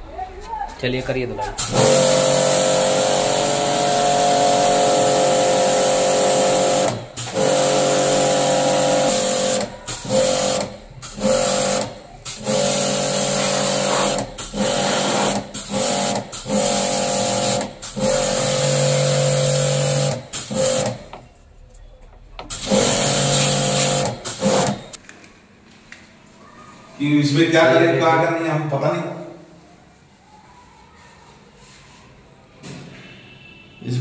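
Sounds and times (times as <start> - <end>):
water jet hissing: 1.6 - 21.1, 22.4 - 25.0
pressure washer motor humming: 1.6 - 21.2, 22.4 - 25.0.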